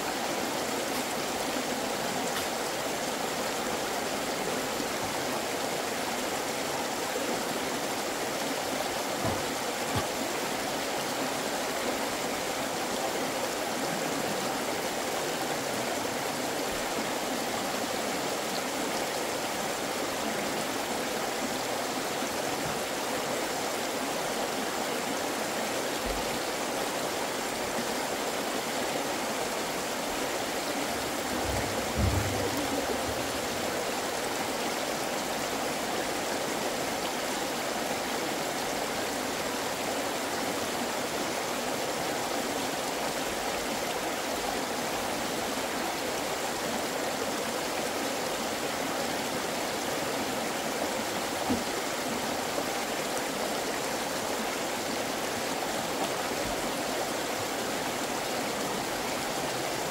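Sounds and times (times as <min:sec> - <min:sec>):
low thump: 0:31.4 - 0:33.4.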